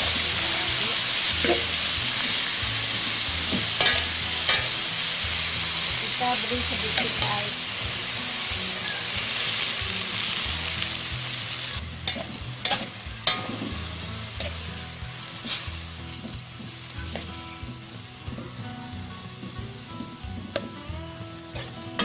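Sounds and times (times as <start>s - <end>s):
wok sizzling: 0.0s - 22.0s
spatula scraping a wok: 0.1s - 7.5s, 11.3s - 14.7s, 15.4s - 17.3s, 21.4s - 22.0s.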